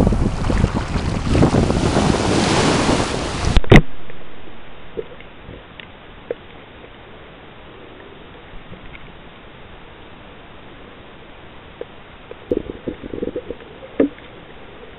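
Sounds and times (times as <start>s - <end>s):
waves washing onto beach: 0.0s - 3.7s
wind buffeting microphone: 0.0s - 3.8s
muffled underwater hiss: 6.2s - 14.9s
faint ticks: 8.7s - 9.2s.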